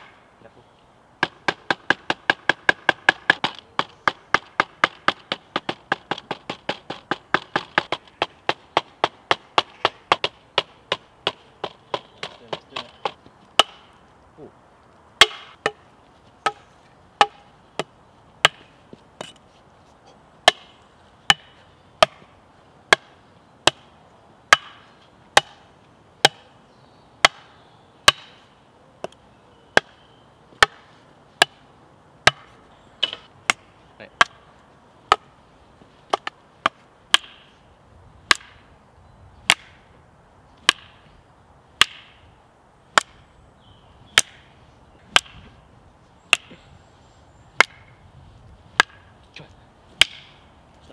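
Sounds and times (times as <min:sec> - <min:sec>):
wooden bat and stick clacking: 0:01.2 - 0:14.0, 0:15.2 - 0:15.8, 0:16.4 - 0:22.3, 0:24.5 - 0:26.5, 0:28.1 - 0:28.4, 0:29.8 - 0:30.0, 0:30.6 - 0:34.5, 0:35.1 - 0:35.4, 0:36.1 - 0:37.5, 0:38.3 - 0:38.7, 0:39.5 - 0:39.8, 0:40.6 - 0:41.0, 0:41.8 - 0:42.2, 0:42.9 - 0:43.2, 0:44.2 - 0:44.5, 0:45.1 - 0:45.5, 0:46.3 - 0:46.6, 0:47.6 - 0:48.0, 0:48.7 - 0:49.1, 0:49.9 - 0:50.5.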